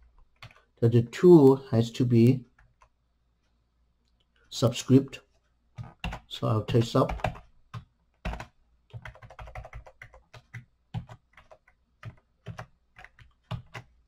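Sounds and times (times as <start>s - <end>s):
keyboard typing: 5.7s - 14.0s.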